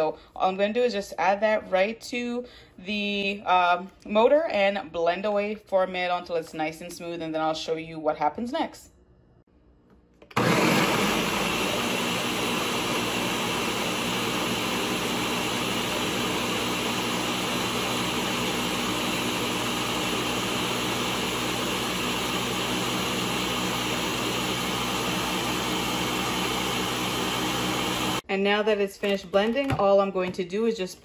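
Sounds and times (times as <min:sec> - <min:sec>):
blender running: 0:10.3 - 0:28.2.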